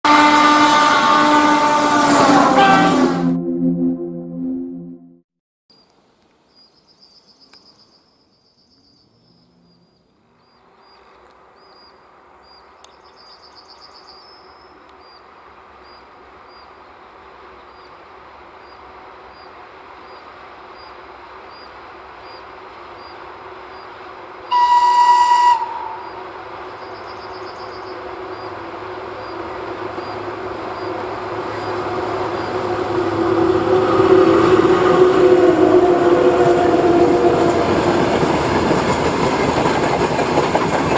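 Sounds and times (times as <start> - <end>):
locomotive horn blast: 0.0 - 5.2, 24.5 - 26.4, 30.6 - 38.3
locomotive hum: 0.1 - 5.0, 14.6 - 40.9
train rumble: 13.9 - 40.9.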